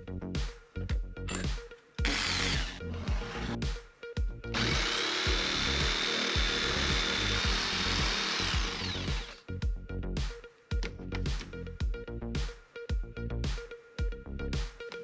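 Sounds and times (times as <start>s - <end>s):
background music with a beat: 0.0s - 15.0s
electric jigsaw sawing wood: 2.0s - 3.6s, 4.6s - 9.4s.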